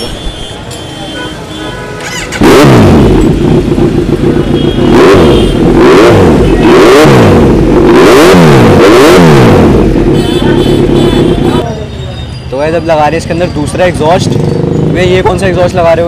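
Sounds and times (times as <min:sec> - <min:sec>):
motorcycle engine revving: 0:02.0 - 0:11.6, 0:13.2 - 0:16.0.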